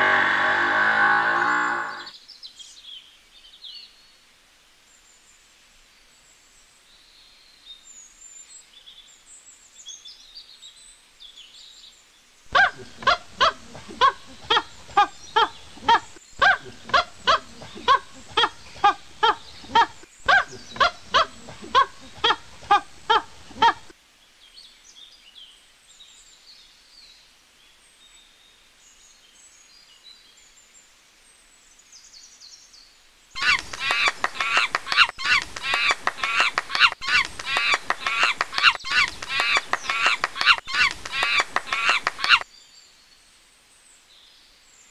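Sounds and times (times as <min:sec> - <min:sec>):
loud animal calls: 0:00.0 - 0:02.1, 0:12.5 - 0:23.9, 0:33.4 - 0:42.4
rapid high-pitched calls: 0:33.4 - 0:42.4.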